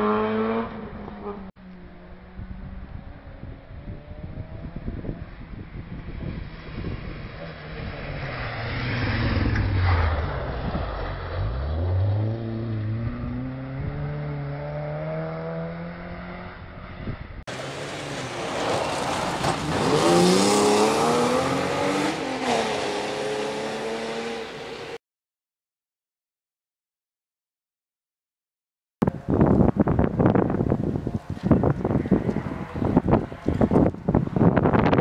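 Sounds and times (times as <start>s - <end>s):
rally car engine revving: 17.5s - 24.8s.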